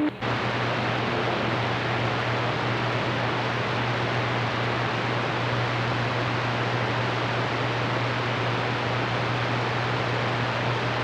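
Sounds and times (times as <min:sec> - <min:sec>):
radio static hiss: 0:00.0 - 0:01.8
low steady hum: 0:00.0 - 0:07.5.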